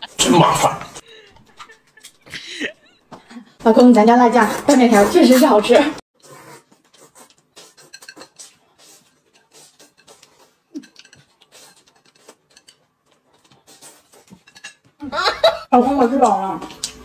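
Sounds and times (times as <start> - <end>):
noodles slurped and chewed: 6.2 - 14.5.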